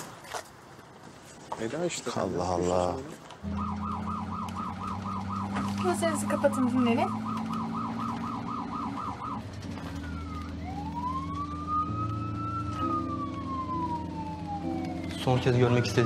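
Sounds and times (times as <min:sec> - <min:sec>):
ambulance siren: 0:03.4 - 0:16.0
low steady drone: 0:03.4 - 0:16.0.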